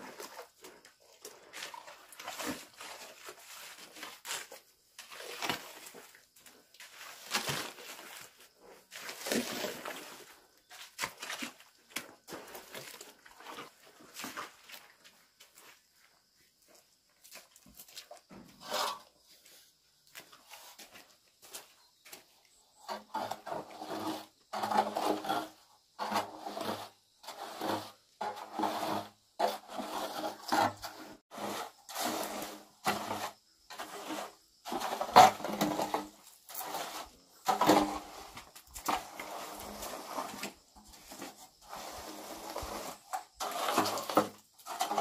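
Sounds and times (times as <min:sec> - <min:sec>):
trowel scraping cement: 0:22.8 - 0:45.0.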